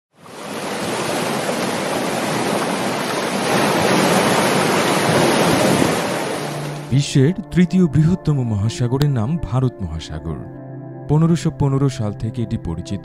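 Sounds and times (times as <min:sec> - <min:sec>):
ocean waves breaking: 0:00.1 - 0:06.9.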